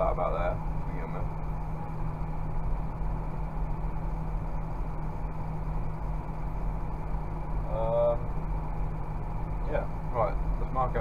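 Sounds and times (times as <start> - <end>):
tractor diesel engine droning: 0.0 - 11.0.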